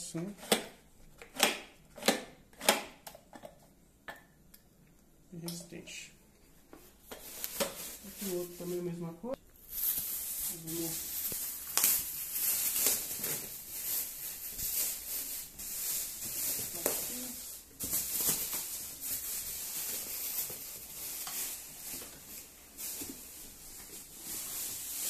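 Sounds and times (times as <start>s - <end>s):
plastic wrap crinkling: 6.8s - 25.0s.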